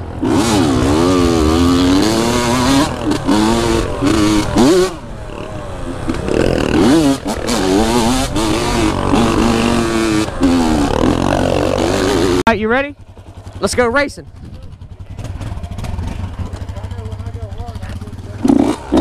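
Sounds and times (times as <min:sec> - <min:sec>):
dirt bike engine revving: 0:00.0 - 0:19.0.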